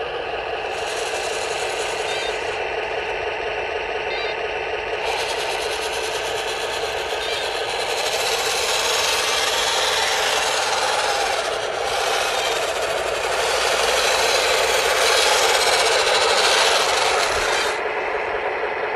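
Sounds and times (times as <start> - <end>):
model tank motors grinding rattle: 0.0 - 18.9.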